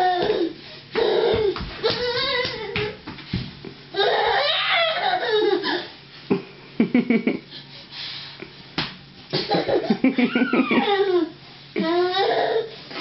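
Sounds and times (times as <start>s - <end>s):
person laughing: 6.3s - 7.5s, 9.4s - 11.2s.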